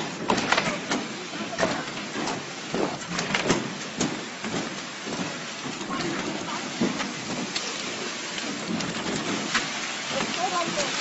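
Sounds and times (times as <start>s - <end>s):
knocks and clanks: 0.0s - 7.8s
steady hiss: 0.0s - 11.0s.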